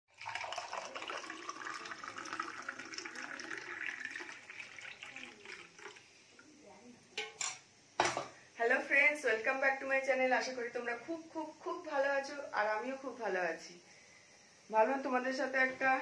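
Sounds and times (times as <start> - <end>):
liquid pouring through strainer: 0.1 - 6.1.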